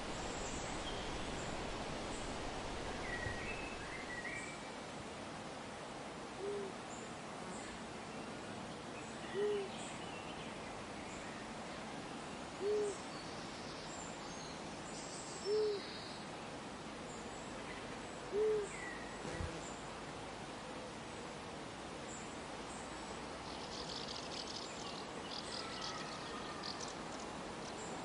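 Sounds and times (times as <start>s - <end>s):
running water hiss: 0.0s - 8.0s
owl hooting: 6.4s - 6.7s, 9.4s - 9.7s, 12.6s - 13.0s, 15.5s - 15.8s, 18.3s - 18.7s
small bird chirping: 23.4s - 27.9s.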